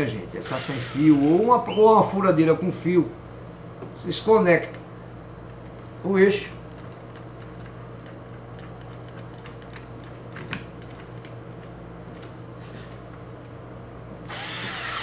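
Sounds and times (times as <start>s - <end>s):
cordless drill burst: 0.5s - 1.3s, 14.3s - 15.0s.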